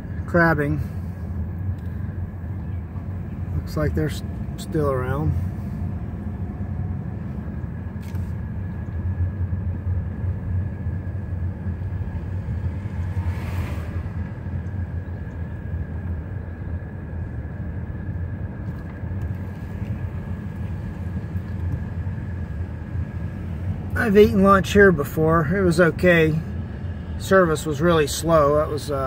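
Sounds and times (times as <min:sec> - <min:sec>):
engine and tyre rumble: 0:00.0 - 0:29.0
faint steady whine: 0:00.0 - 0:29.0.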